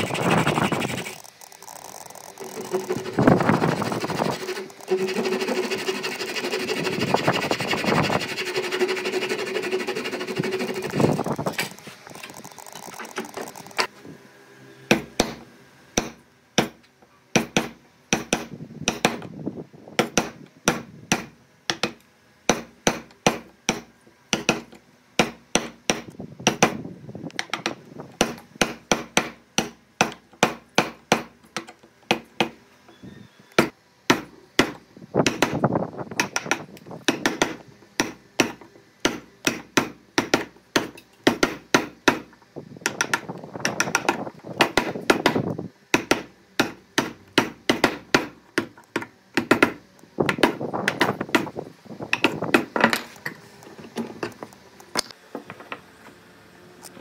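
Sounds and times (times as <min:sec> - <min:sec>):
hammering on wood: 0:16.0 - 0:19.3, 0:20.0 - 0:26.8, 0:27.5 - 0:32.6, 0:33.6 - 0:35.6, 0:36.2 - 0:42.3, 0:42.9 - 0:51.5.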